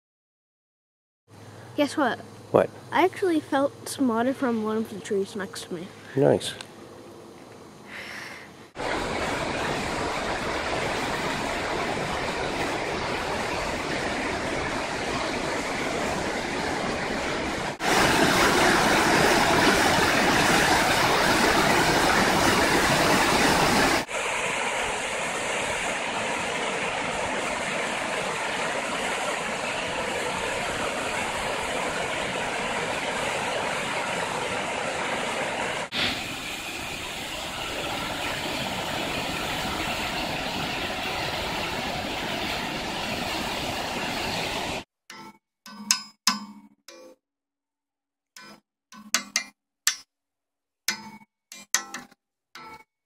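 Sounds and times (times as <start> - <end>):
river rushing over boulders: 8.8 - 44.8.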